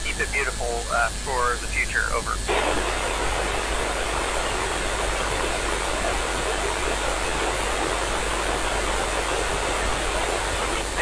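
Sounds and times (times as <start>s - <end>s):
radio receiver hiss: 0.0s - 11.0s.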